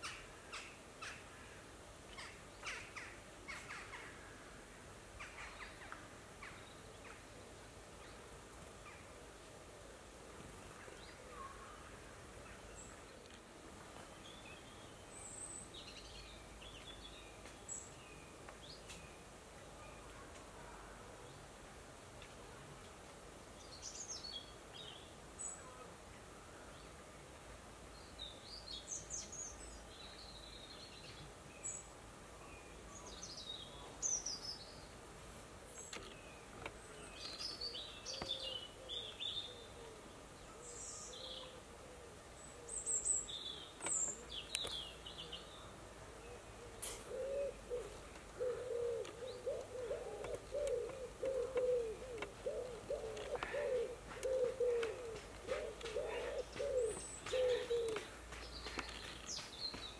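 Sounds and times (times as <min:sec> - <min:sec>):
small birds chirping: 0:35.7 - 0:41.6, 0:42.3 - 0:59.9
pigeon cooing: 0:46.3 - 0:58.1.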